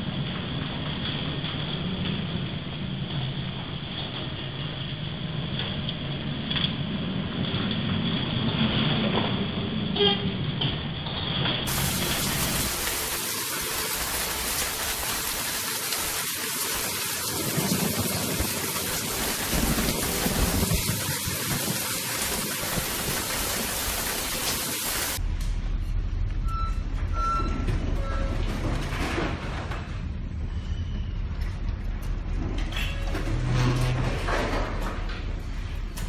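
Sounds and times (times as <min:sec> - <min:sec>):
storm wind rushing hiss: 0:15.3 - 0:25.2
low hum: 0:25.2 - 0:36.0
short electronic beeps: 0:26.4 - 0:28.3.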